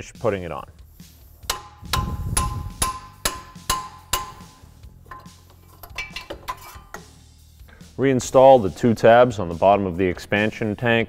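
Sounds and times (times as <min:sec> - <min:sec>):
hammer tapping metal wrench: 0:01.4 - 0:07.2.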